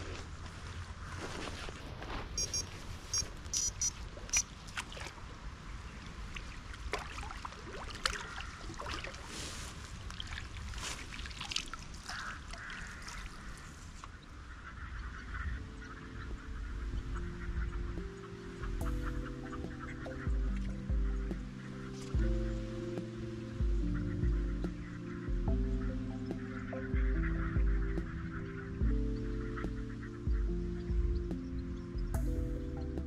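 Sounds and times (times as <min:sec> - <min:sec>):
waterfowl calling: 0:02.4 - 0:04.5, 0:08.0 - 0:09.3, 0:12.0 - 0:32.6
wind rumble on microphone: 0:15.0 - 0:26.2
low background music: 0:15.1 - 0:33.0.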